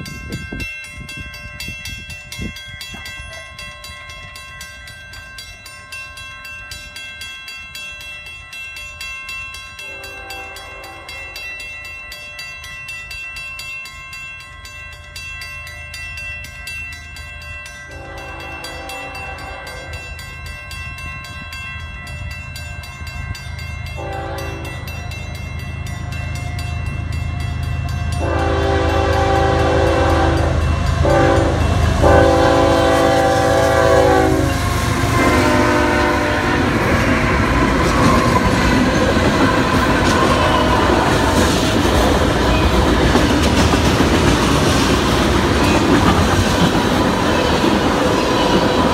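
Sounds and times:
crossing warning bell ringing: 0.0 - 48.9
low rumble of locomotives: 0.0 - 48.9
locomotive horn blasts: 9.8 - 11.4, 17.9 - 20.1, 24.0 - 24.9, 28.2 - 36.8.

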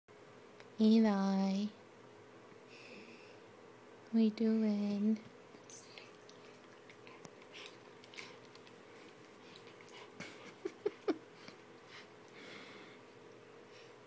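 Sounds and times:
puppy licking and nibbling: 5.5 - 10.2.

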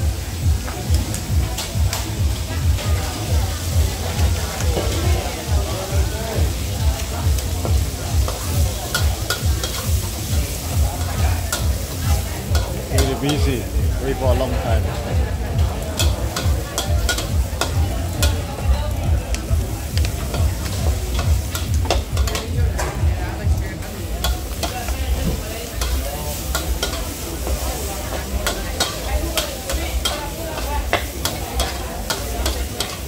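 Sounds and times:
food sizzling in a wok: 0.0 - 33.0
metal spatula scraping a pan: 25.7 - 33.0.

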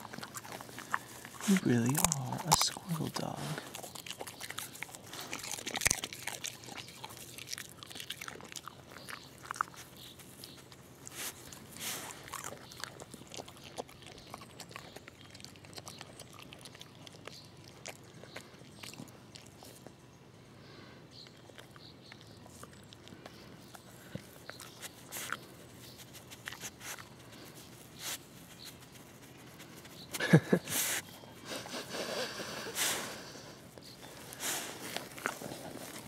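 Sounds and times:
dog crunching peanut shells: 0.0 - 20.0, 33.8 - 36.0.

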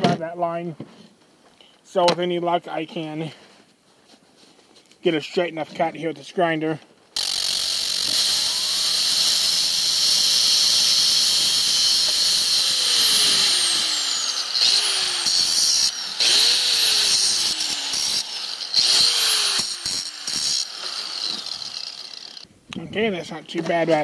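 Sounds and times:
angle grinder cutting metal: 7.2 - 22.5.

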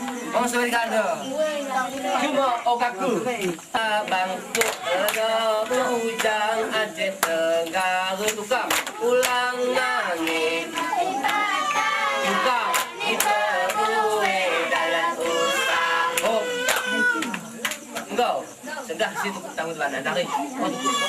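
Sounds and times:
sharp hand claps: 3.4 - 6.4, 7.1 - 9.6, 10.2 - 15.4, 16.1 - 18.2
girls singing a chant: 3.7 - 17.7.

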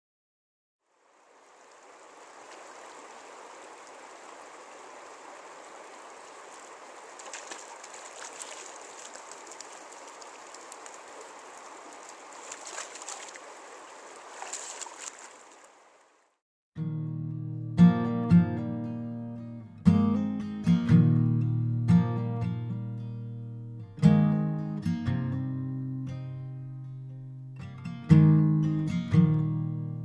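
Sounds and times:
mountain stream rushing: 0.9 - 16.4
legs splashing through water: 1.5 - 16.3.

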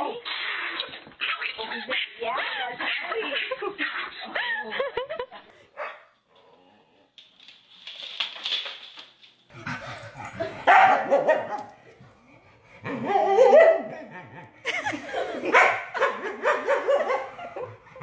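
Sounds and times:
dogs barking: 5.7 - 6.1, 9.6 - 12.0, 12.8 - 14.2, 14.8 - 18.0.

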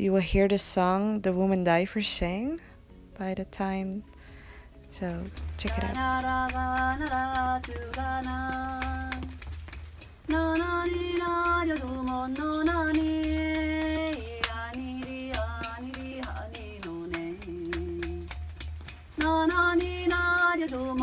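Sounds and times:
woman singing long notes: 5.3 - 9.4, 10.3 - 18.4, 19.2 - 21.0.

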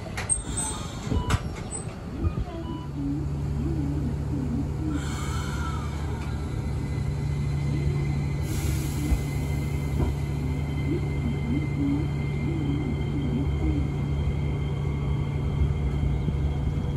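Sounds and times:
tram knocks and clatter: 0.0 - 4.3, 5.6 - 16.9
air hissing: 8.4 - 10.8.

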